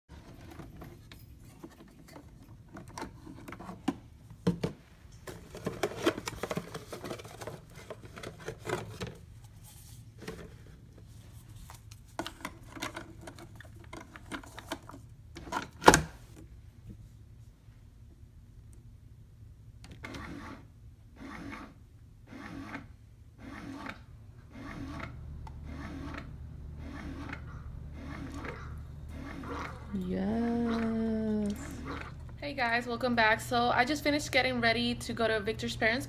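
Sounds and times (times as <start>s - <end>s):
plastic clicks and rustling: 11.7s - 16.1s.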